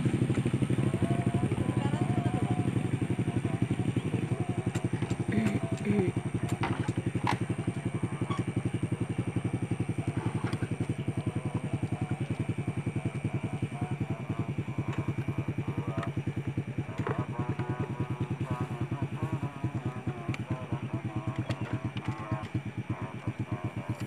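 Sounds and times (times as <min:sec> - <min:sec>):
diesel engine idling: 0:00.0 - 0:24.0.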